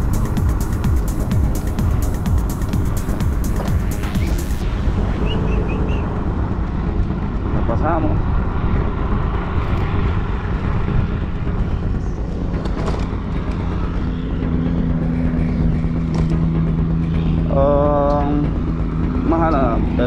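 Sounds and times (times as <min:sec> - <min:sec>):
wind on microphone: 0:00.0 - 0:13.3
road rumble: 0:00.0 - 0:20.0
steady low hum: 0:00.0 - 0:20.0.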